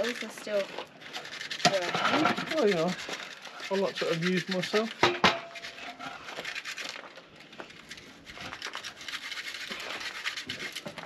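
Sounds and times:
scraping and rustling: 0.0 - 11.0.

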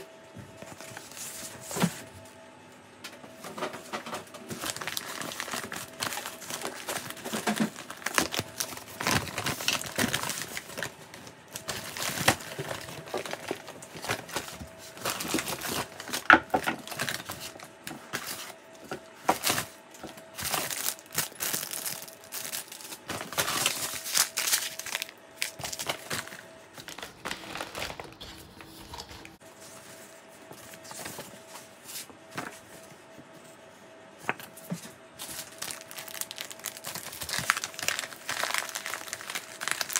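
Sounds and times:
paper bag rustling and crinkling: 3.4 - 32.8, 35.2 - 39.9
plastic food packets crinkling: 4.4 - 29.4, 35.2 - 39.9.

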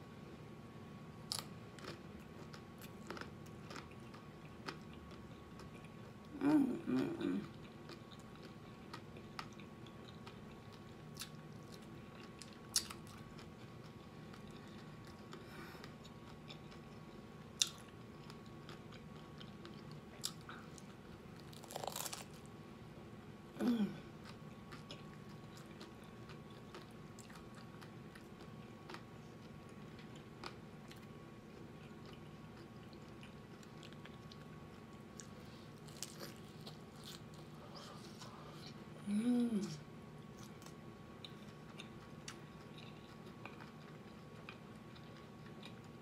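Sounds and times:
faint steady hum: 0.0 - 46.0
taco shells crunching: 1.3 - 5.9, 17.6 - 22.5, 35.2 - 37.4
chewing: 1.3 - 6.4, 7.0 - 22.3, 24.2 - 38.8, 40.3 - 46.0.

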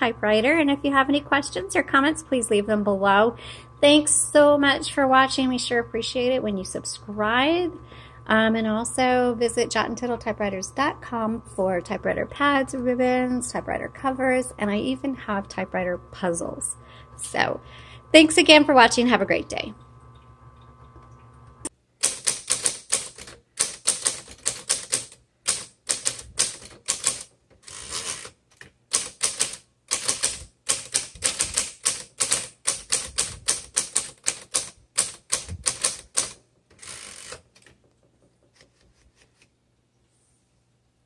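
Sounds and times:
typewriter key strikes: 22.0 - 27.3, 28.9 - 36.4
typewriter motor hum: 22.0 - 37.8.

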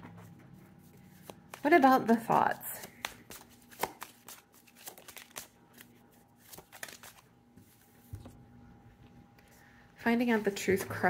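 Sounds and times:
faint steady hum: 0.0 - 11.0
cards being shuffled: 0.8 - 8.4.

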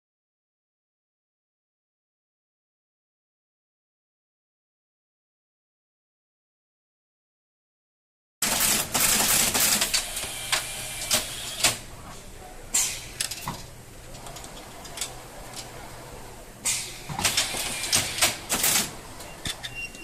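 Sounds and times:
air hissing bursts: 10.0 - 11.8, 16.6 - 18.9
mechanical clacks and knocks: 12.8 - 15.8, 16.6 - 20.0.

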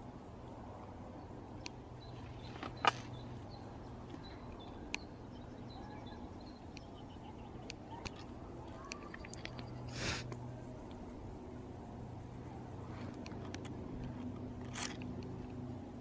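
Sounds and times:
bird chirps: 2.0 - 10.0.

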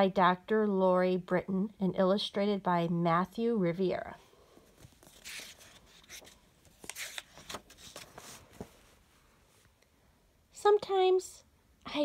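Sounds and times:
book pages turning: 4.6 - 9.0.

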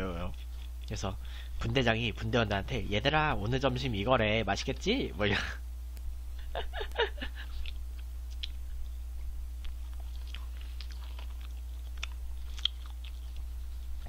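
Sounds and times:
low electrical hum: 0.0 - 14.0
man chewing food: 0.2 - 1.7, 6.9 - 14.0.

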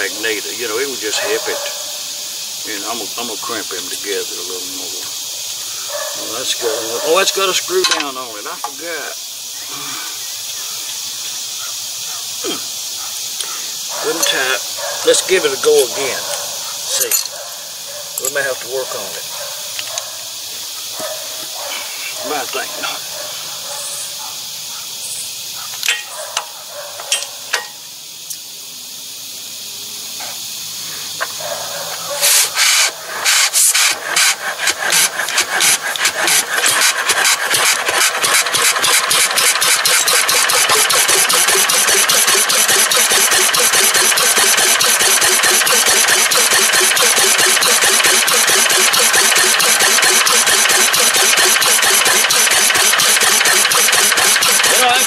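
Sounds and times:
hand crank clicks: 32.3 - 55.0
flywheel engine running: 33.0 - 55.0.

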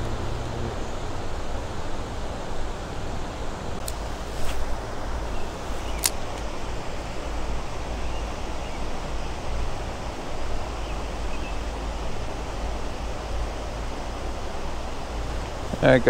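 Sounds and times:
creek water rushing over rocks: 0.0 - 16.0
click: 6.0 - 6.5.

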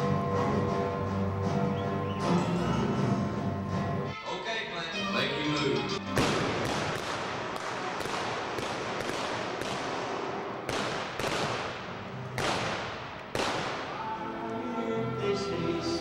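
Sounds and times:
gunshots echoing: 6.1 - 14.2.

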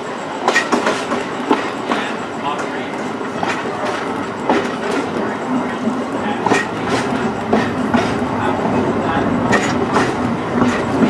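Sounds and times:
streetcar rumbling on rails: 0.0 - 11.0
wheels clicking over rail joints: 0.4 - 11.0.

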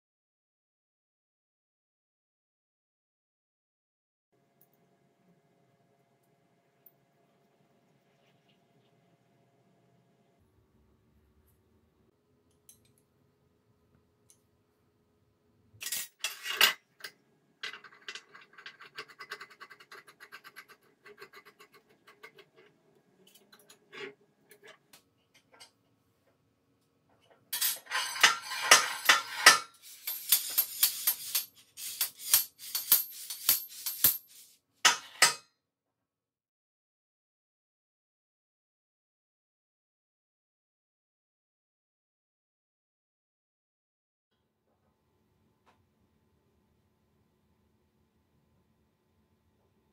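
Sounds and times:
steel parts clinking and rattling: 15.8 - 22.6, 27.3 - 35.4.

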